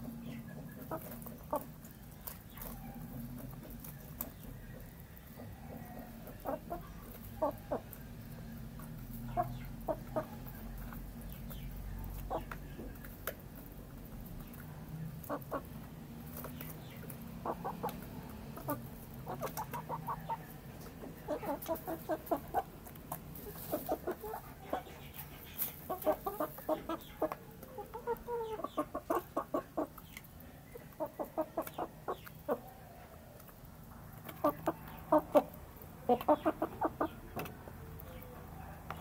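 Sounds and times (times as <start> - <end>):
chickens clucking: 0.0 - 39.0
beaks pecking in metal bowl: 9.0 - 20.5.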